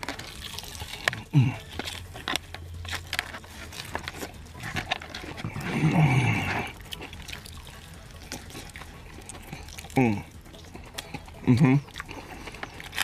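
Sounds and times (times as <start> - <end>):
person chewing noisily: 0.0 - 13.0
person humming mmm: 1.2 - 1.9, 9.4 - 10.4.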